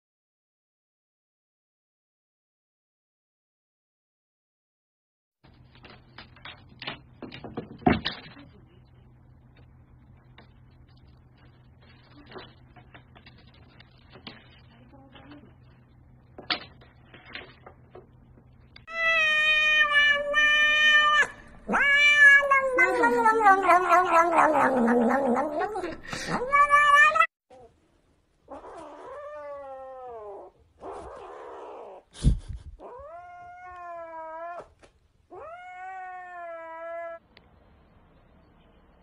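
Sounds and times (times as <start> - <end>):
kitten meowing: 18.9 - 25.0
cat yowling: 18.9 - 27.3, 28.5 - 32.0, 32.8 - 37.2.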